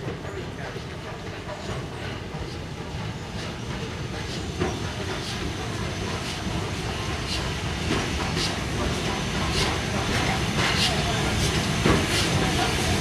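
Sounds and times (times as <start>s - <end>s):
steam locomotive chugging: 0.0s - 13.0s.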